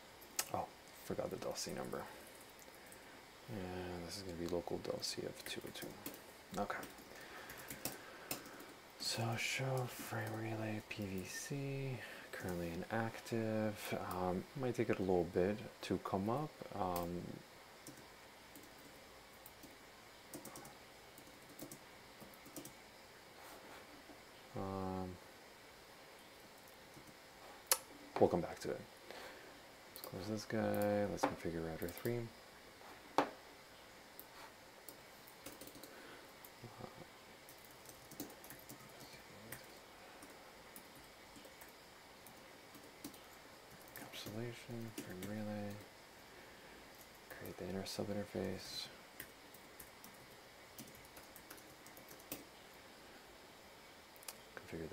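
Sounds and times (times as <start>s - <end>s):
faint keyboard keystrokes: 34.9s - 36.0s.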